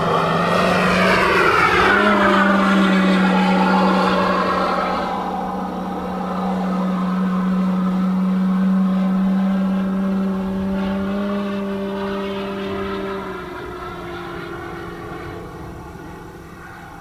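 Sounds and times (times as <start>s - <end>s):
model plane propeller droning: 0.0s - 17.0s.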